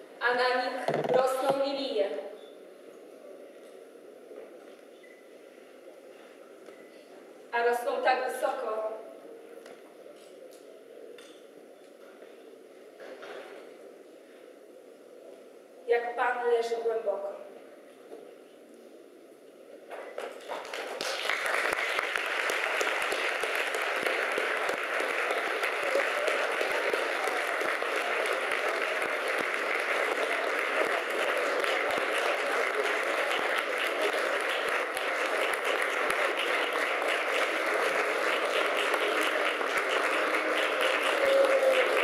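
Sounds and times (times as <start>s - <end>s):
audience applauding: 20.2s - 42.0s.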